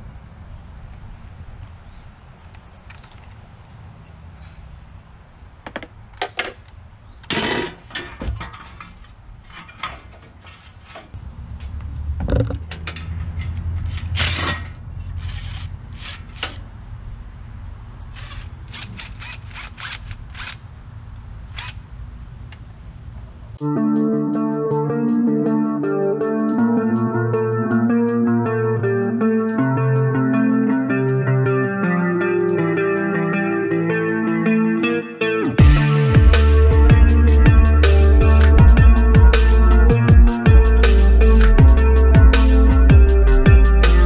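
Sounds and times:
tools clicking and knocking: 12.2 - 16.7.

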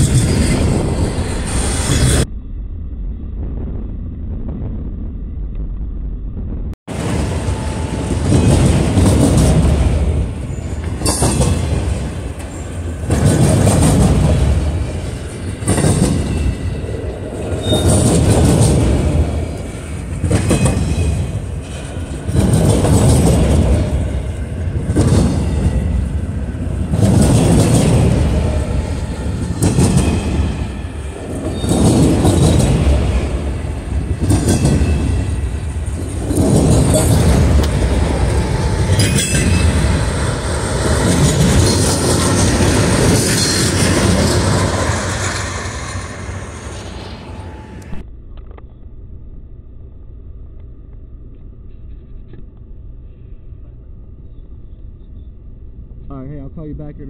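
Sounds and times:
freight train rumbling past: 0.0 - 2.3, 6.9 - 48.1
wheels clicking over rail joints: 7.8 - 46.1.

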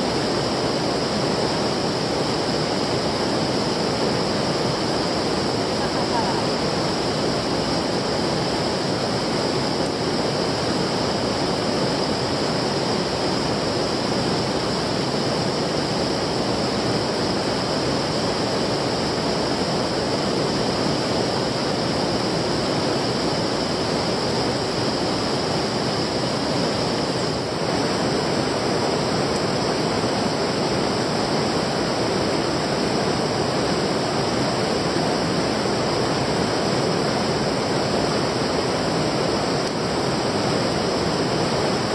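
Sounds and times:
flowing stream water: 0.0 - 41.9.

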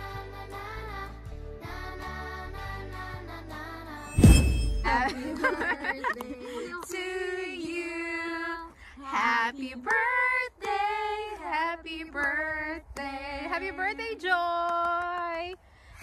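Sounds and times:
women singing unaccompanied: 4.9 - 15.5
hand claps: 14.3 - 15.6.

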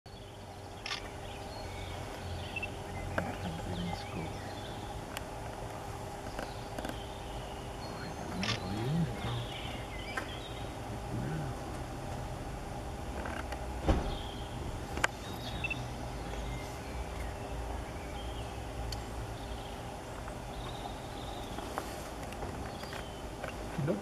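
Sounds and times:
high bird chirps: 0.1 - 5.0, 14.1 - 18.6
low background hum: 0.1 - 24.0
low rising and falling call: 14.4 - 17.5.

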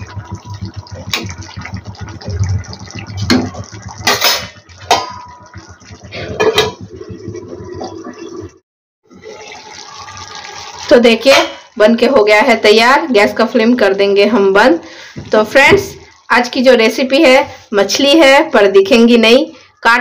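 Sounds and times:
curry bubbling: 0.0 - 19.3
metal spatula clanking on pan: 4.0 - 5.4
steel lid clanking on pan: 4.0 - 5.4, 6.4 - 6.8.

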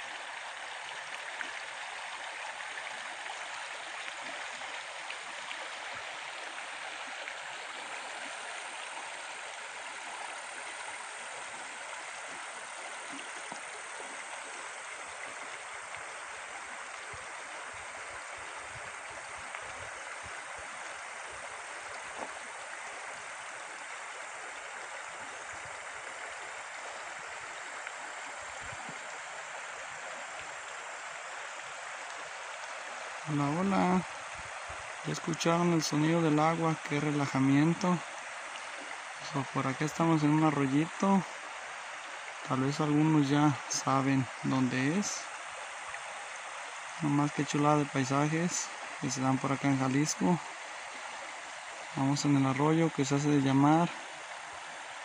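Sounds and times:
river flowing over stones: 0.0 - 55.0.

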